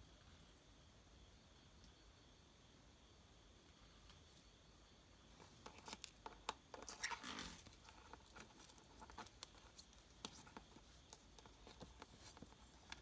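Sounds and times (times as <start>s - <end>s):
scratchy rustle: 5.4s - 13.0s.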